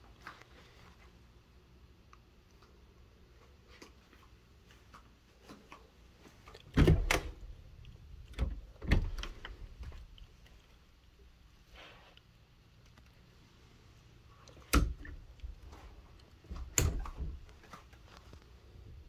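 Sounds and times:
closet door knocking and rattling: 6.7 - 7.4, 8.3 - 9.6.

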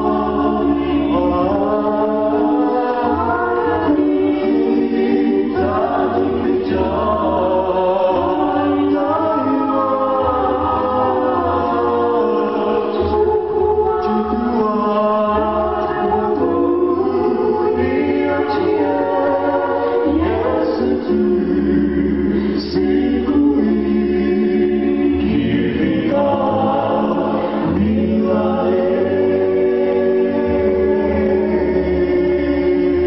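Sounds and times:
male a cappella group singing: 0.0 - 33.0.

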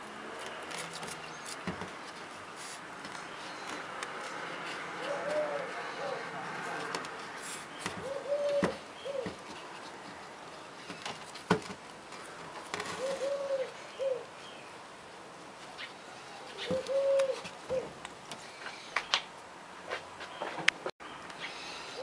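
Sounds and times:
dove cooing: 4.3 - 7.0, 7.9 - 9.4, 12.8 - 14.3, 16.4 - 18.0.

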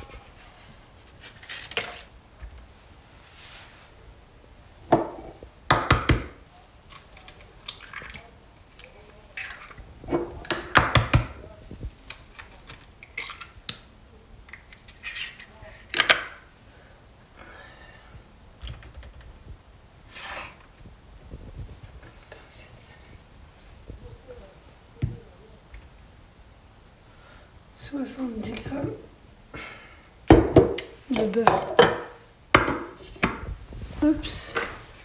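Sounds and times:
dishes and utensils clinking: 4.8 - 5.4, 15.0 - 16.5.

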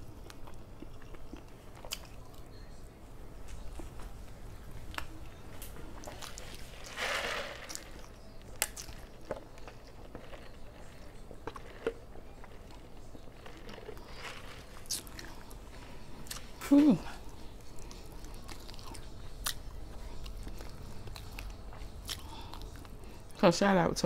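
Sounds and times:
person sipping a drink: 5.7 - 20.7.

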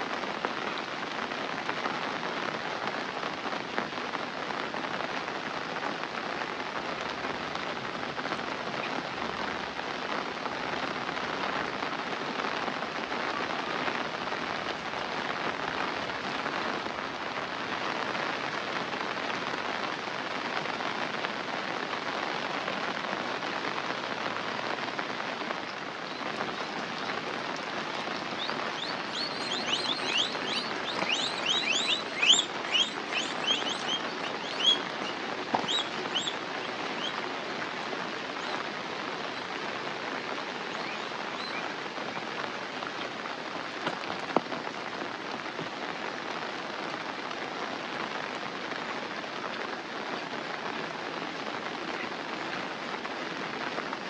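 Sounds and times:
steady rain: 0.0 - 54.0
high chirping: 27.8 - 37.2.

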